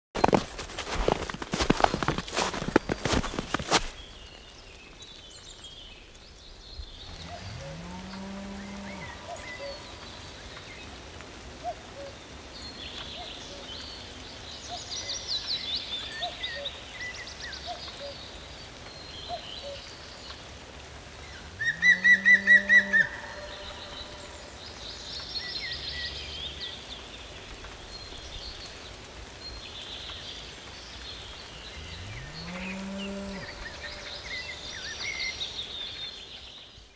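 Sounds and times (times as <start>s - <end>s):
songbirds singing trills: 1.1s - 11.0s, 21.3s - 36.9s.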